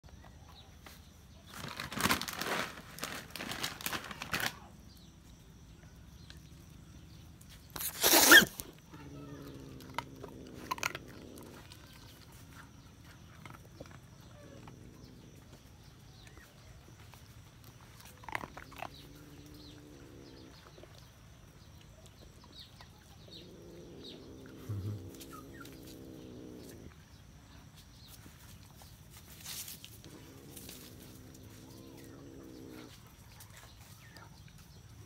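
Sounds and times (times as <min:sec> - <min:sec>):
kitten hissing: 0:07.8 - 0:08.7
kitten low rough call: 0:08.9 - 0:12.2, 0:23.2 - 0:27.0.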